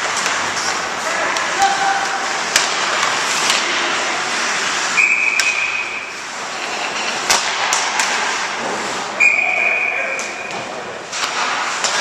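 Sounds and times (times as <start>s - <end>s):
skates scraping on ice: 0.0s - 9.2s, 11.0s - 12.0s
hockey sticks and puck clacking: 0.0s - 12.0s
high whistle blast: 5.0s - 6.1s, 9.2s - 10.2s.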